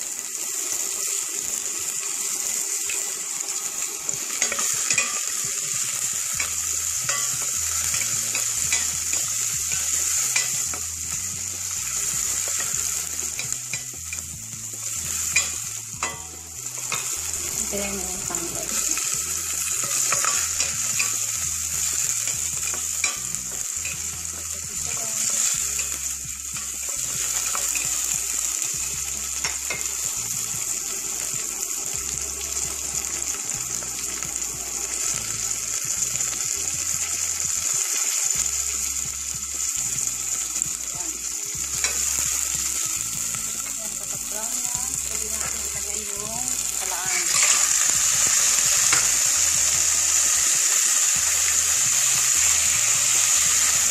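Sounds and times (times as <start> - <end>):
food frying sizzle: 0.0 - 53.9.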